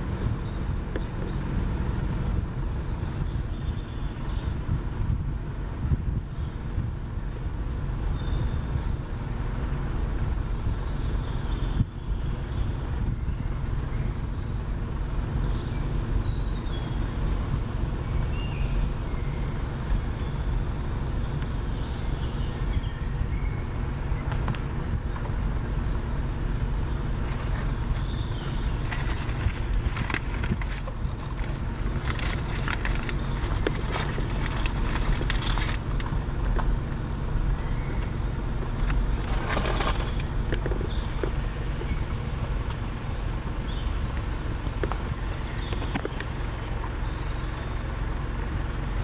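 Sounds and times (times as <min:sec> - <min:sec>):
small birds calling: 0:00.0 - 0:04.8, 0:05.4 - 0:49.0
car driving slowly: 0:00.0 - 0:49.0
crackling noise: 0:27.2 - 0:37.0, 0:38.7 - 0:41.4.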